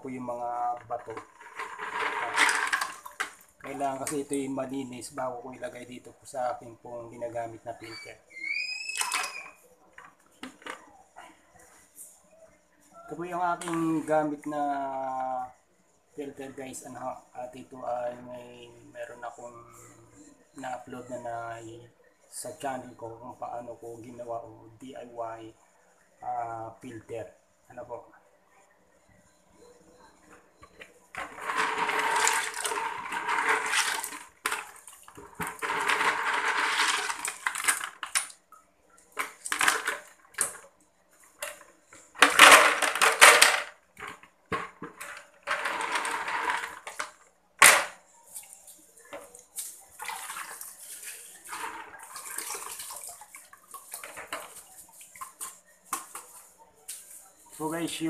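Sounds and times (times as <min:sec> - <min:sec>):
water sloshing in a bucket: 0:48.3 - 0:56.3.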